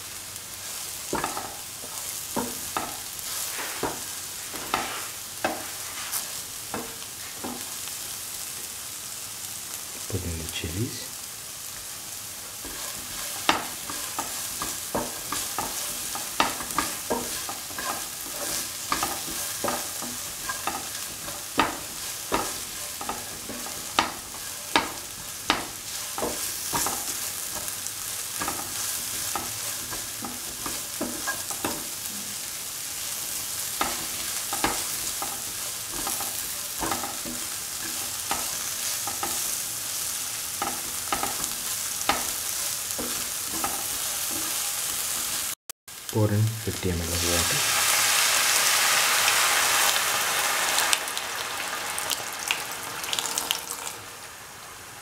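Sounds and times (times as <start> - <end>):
vegetables sizzling in a pan: 0.0 - 55.0
spatula scraping and knocking pan: 0.6 - 7.8, 12.6 - 45.6.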